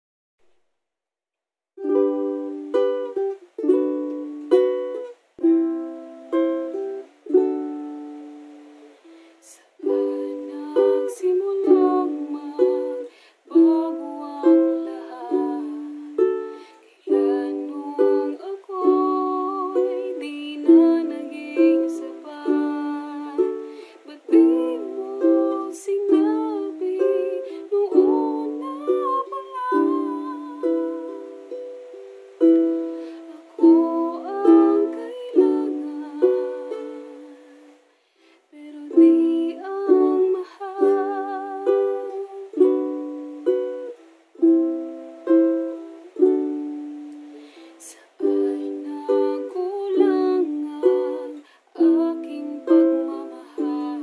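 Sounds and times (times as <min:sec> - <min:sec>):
ukulele chords: 0:01.8 - 0:37.9, 0:38.6 - 0:54.0
woman singing: 0:09.4 - 0:31.6, 0:32.5 - 0:37.6, 0:38.5 - 0:43.8, 0:47.8 - 0:54.0.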